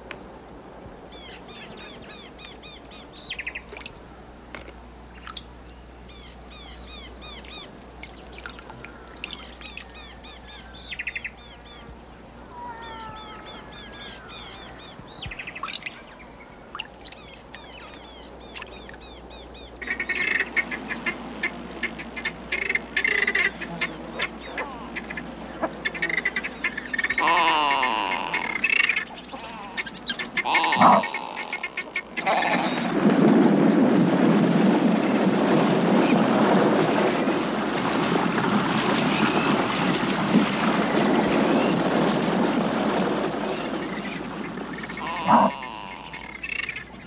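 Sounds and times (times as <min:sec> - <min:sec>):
birds chirping and trilling: 0:01.1 - 0:04.0, 0:05.1 - 0:21.2, 0:21.8 - 0:32.9, 0:43.4 - 0:47.0
harsh bird chattering calls: 0:21.9 - 0:32.9, 0:43.6 - 0:47.0.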